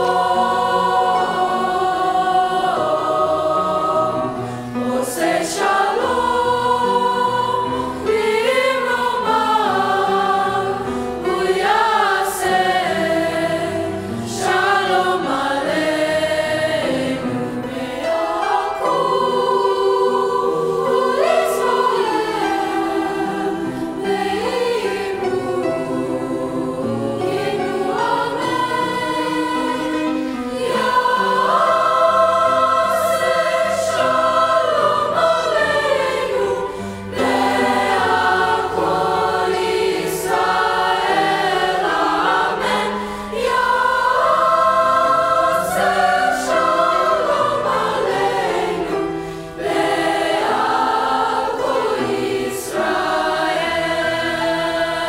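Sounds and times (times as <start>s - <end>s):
choir singing in parts: 0.0s - 55.0s
singers breathing: 4.3s - 4.8s, 23.6s - 24.0s, 36.6s - 37.1s, 42.9s - 43.4s, 49.0s - 49.6s.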